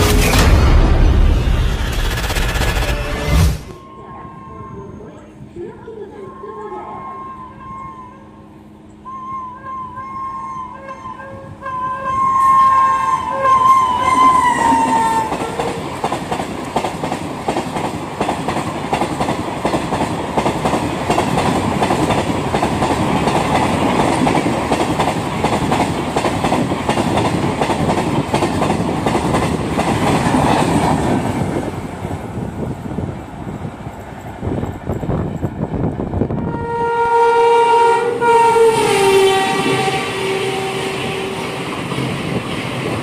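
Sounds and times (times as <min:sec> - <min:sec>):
locomotive horn: 0:06.1 - 0:15.8, 0:36.4 - 0:41.6
train wheels clattering: 0:14.7 - 0:31.6.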